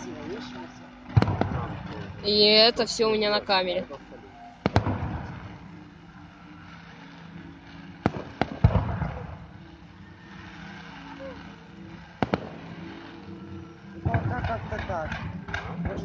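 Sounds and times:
rumbling echo: 1.0s - 3.1s, 4.6s - 6.2s, 8.0s - 9.7s
firework shells bursting: 1.1s - 2.7s, 4.6s - 5.6s, 6.7s - 9.4s, 10.4s - 13.3s.

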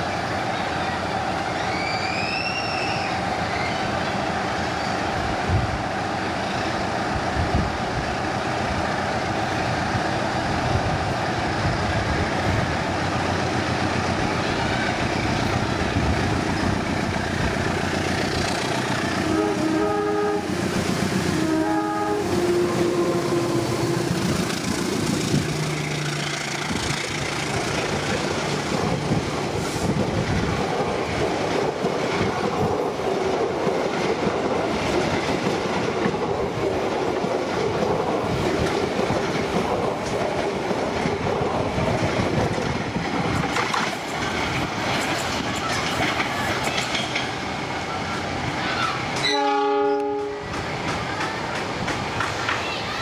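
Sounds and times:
train wheels rumbling on rails: 0.0s - 53.0s
locomotive horn blasts: 19.2s - 20.5s, 21.4s - 23.9s, 49.2s - 50.5s.

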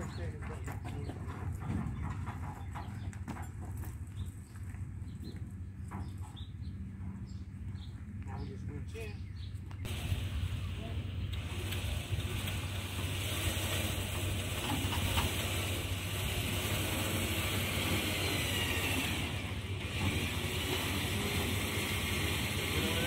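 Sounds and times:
motor humming and whirring: 9.8s - 23.0s.

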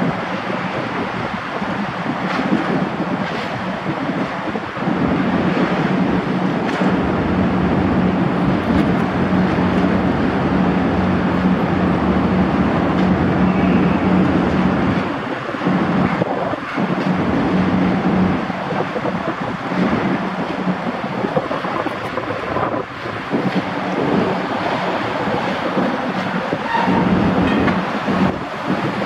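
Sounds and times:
boat engine droning: 0.0s - 29.0s
wind and water rushing: 0.0s - 29.0s.

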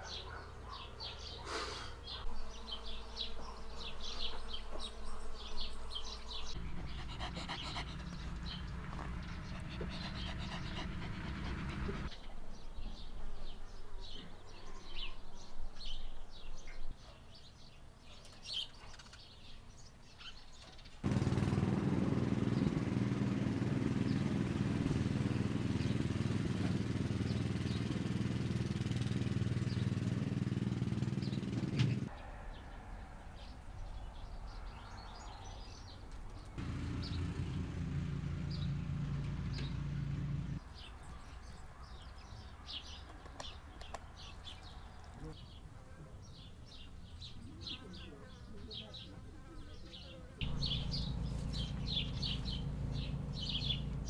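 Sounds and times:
chirping: 0.0s - 12.2s, 50.4s - 54.0s
small engine running: 6.4s - 12.1s, 21.0s - 32.1s, 36.6s - 40.6s, 50.4s - 54.0s.

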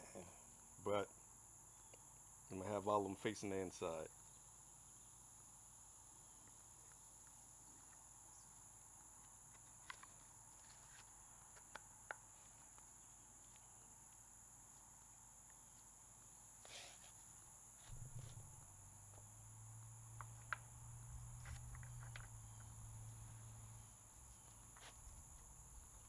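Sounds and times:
high insect drone: 0.0s - 26.0s
soft rustle: 16.6s - 19.3s, 21.0s - 26.0s.

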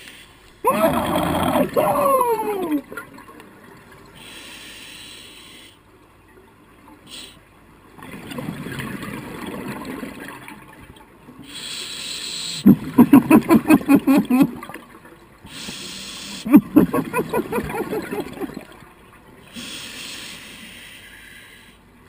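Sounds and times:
regulator hissing inhale: 4.2s - 5.8s, 15.5s - 16.5s, 19.5s - 21.8s
bubbling exhale underwater: 12.6s - 14.6s.

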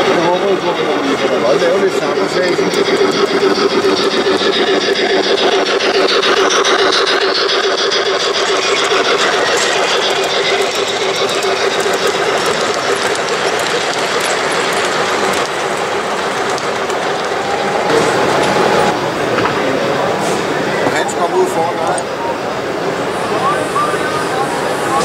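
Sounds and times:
model train wheels clattering on rails: 0.0s - 19.5s.

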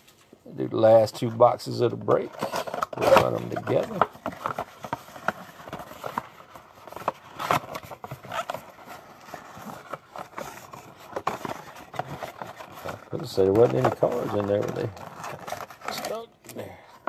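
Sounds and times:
cardboard card packs rustling: 0.0s - 17.0s.

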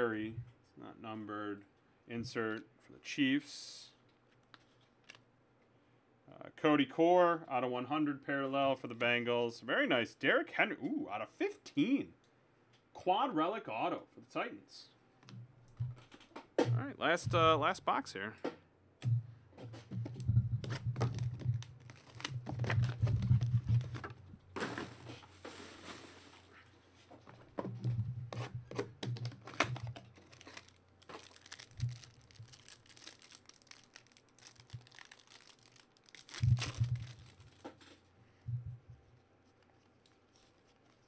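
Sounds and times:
cards and box rustling and knocking: 19.1s - 26.3s, 27.1s - 38.0s
wrapper crinkling: 20.9s - 24.2s, 29.1s - 38.1s
card pack tearing open: 21.0s - 24.9s, 28.7s - 37.9s.

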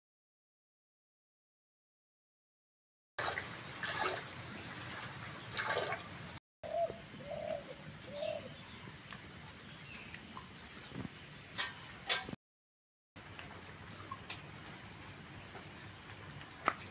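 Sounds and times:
rural background noise: 3.2s - 12.4s, 13.2s - 16.9s
dove cooing: 6.6s - 8.7s.

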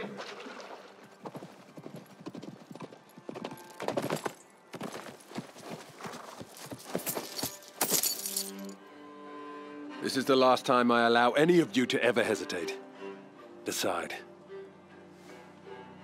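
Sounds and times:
horse hoofbeats at a run: 1.2s - 8.2s.

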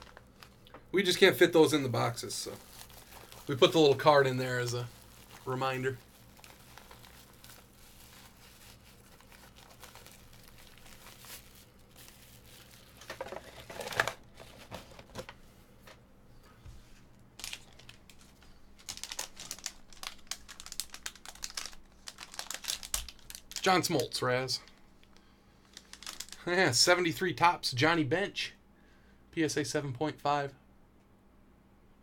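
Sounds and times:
foil wrapper crinkling: 0.0s - 15.4s, 17.4s - 26.5s.

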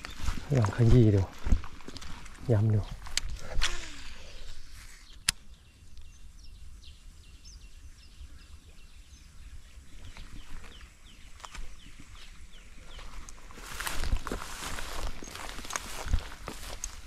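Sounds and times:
sharp click: 5.2s - 5.5s
small bird chirping: 14.9s - 17.0s.

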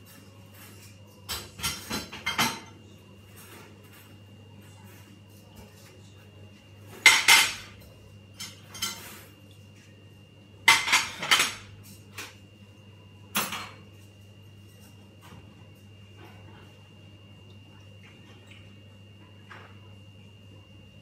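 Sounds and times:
dishes and cutlery clattering: 0.1s - 6.1s, 6.9s - 9.3s, 10.6s - 12.4s, 13.3s - 14.0s.

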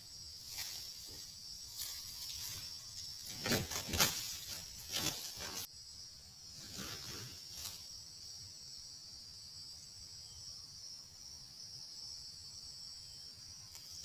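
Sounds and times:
insects droning: 0.0s - 14.0s
roosters wing-flapping and scuffling: 3.2s - 5.7s.

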